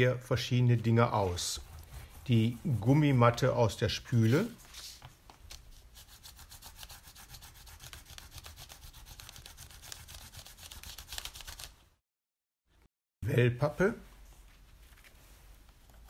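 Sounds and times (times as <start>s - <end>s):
pencil scratching on paper: 1.2s - 3.4s, 5.7s - 11.6s.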